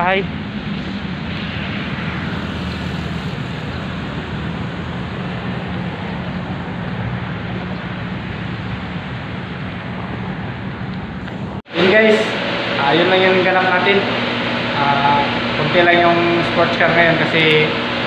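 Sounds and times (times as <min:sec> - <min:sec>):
city street traffic: 0:00.0 - 0:11.7.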